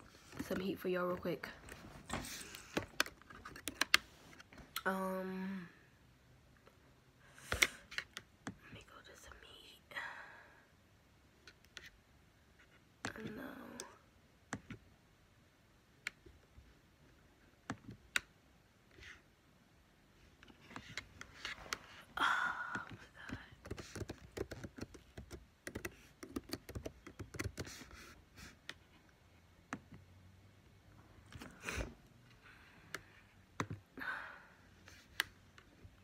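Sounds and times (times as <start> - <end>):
keyboard typing: 22.8 - 28.1.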